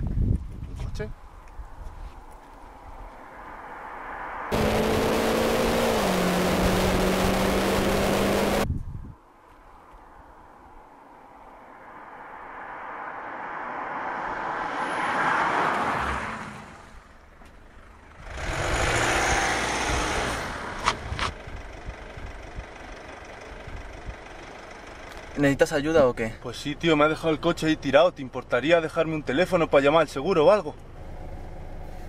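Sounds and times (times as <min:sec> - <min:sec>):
car and road noise: 0:00.0 - 0:32.0
car driving past: 0:02.7 - 0:08.6, 0:11.1 - 0:20.9.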